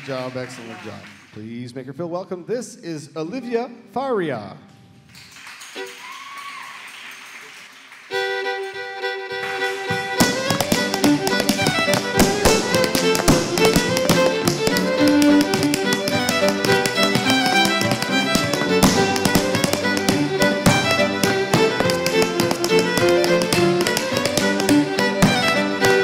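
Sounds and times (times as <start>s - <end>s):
fiddle playing: 5.8s - 6.1s, 8.1s - 26.0s
piano accompaniment: 9.4s - 26.0s
hard shoes tapping: 9.5s - 26.0s.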